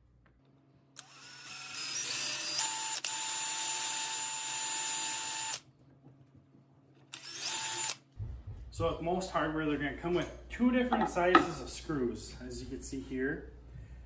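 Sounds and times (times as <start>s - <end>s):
cordless drill boring into wood: 1.0s - 5.6s, 7.2s - 8.0s.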